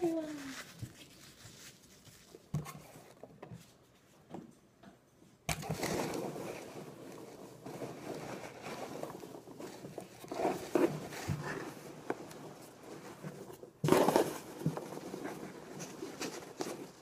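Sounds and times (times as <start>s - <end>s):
hands rustling packing filler: 5.5s - 17.0s.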